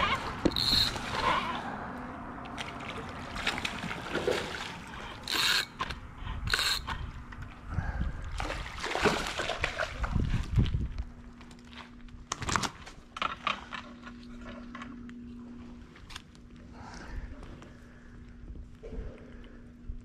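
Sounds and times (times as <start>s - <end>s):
fishing reel ticking: 0.0s - 1.5s, 5.2s - 7.0s
water splashing: 2.4s - 5.8s, 8.3s - 10.4s.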